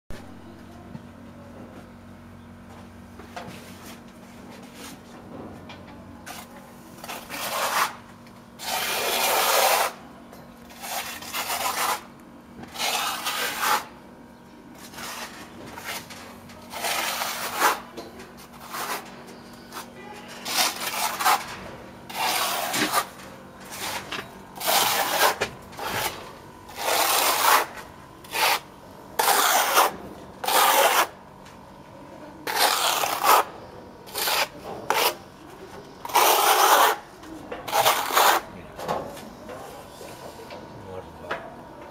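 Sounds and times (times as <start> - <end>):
trowel scraping render: 6.3 - 8.0, 8.6 - 10.0, 10.7 - 14.0, 14.8 - 31.2, 32.4 - 35.2, 35.9 - 38.5.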